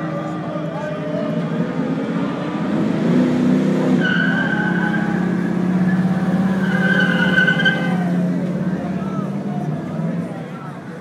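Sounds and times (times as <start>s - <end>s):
car engine rumbling: 0.0s - 11.0s
car tyres squealing: 2.7s - 8.3s.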